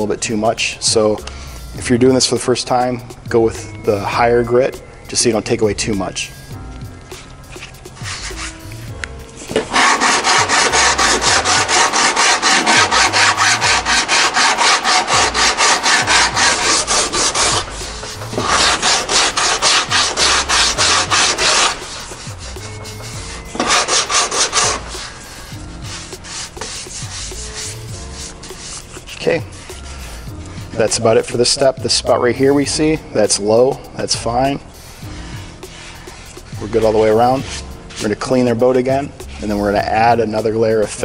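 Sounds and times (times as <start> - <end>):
sandpaper rasping on fiberglass: 7.1 - 31.6, 34.7 - 41.0.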